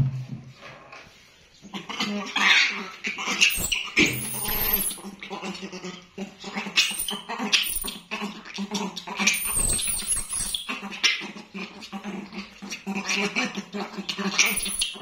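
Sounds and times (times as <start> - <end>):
monkey squealing: 2.4 - 5.6, 6.4 - 11.4, 14.1 - 15.0.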